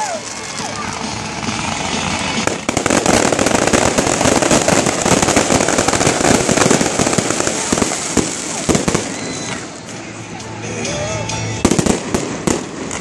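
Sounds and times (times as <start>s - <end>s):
fireworks crackling: 0.0s - 13.0s.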